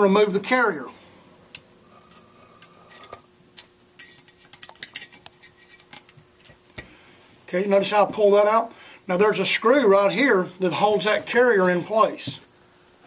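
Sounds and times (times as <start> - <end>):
metallic clicks of steel parts: 1.5 - 6.6.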